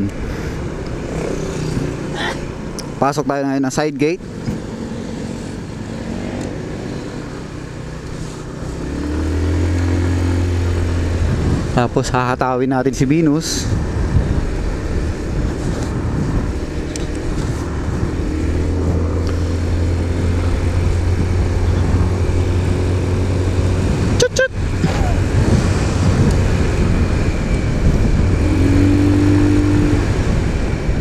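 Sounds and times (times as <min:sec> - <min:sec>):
scooter engine humming: 0:00.0 - 0:03.2, 0:04.2 - 0:11.9, 0:13.7 - 0:31.0
wind rush on microphone: 0:04.4 - 0:31.0
person speaking: 0:24.2 - 0:25.3.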